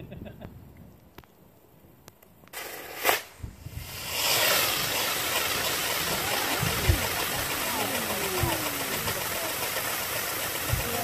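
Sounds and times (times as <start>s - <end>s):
firework burst: 2.5s - 11.0s
firework wheel hissing: 2.5s - 11.0s.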